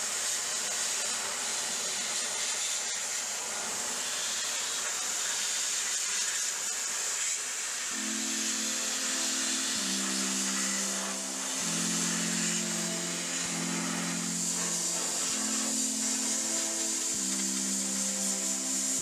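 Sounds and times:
steam cleaner hissing: 0.0s - 19.0s
music of sustained chords: 7.9s - 19.0s.

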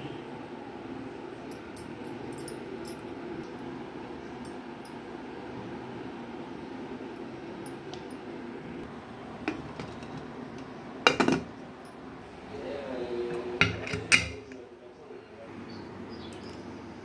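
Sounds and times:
sharp metal clinks: 1.5s - 3.1s
metal lid knocks: 11.1s - 11.5s.

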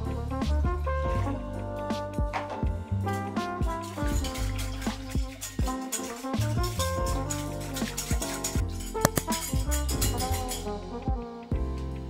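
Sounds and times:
drums and percussion music: 0.0s - 12.0s.

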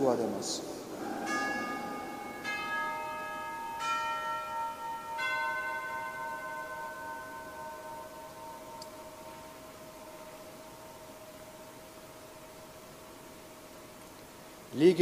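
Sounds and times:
altar bells ringing: 0.8s - 13.7s.

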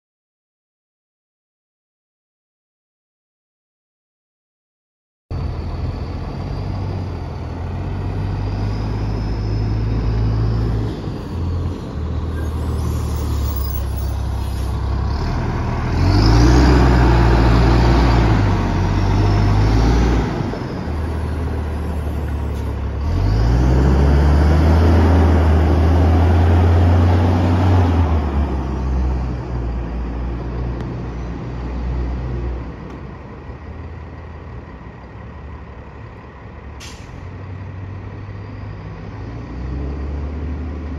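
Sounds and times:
high whine: 5.3s - 15.0s
bus engines revving: 5.3s - 40.9s.

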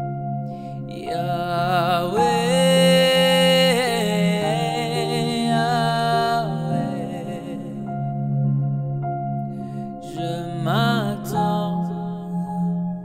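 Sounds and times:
man singing with vibrato: 0.9s - 8.0s, 10.0s - 12.6s.

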